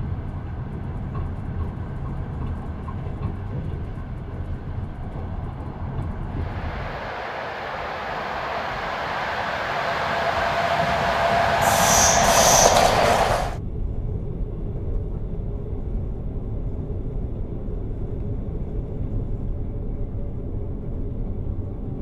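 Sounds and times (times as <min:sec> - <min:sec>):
passenger train passing: 0:00.0 - 0:13.6
low rumble inside train carriage: 0:00.0 - 0:22.0
high squeal: 0:06.3 - 0:13.6.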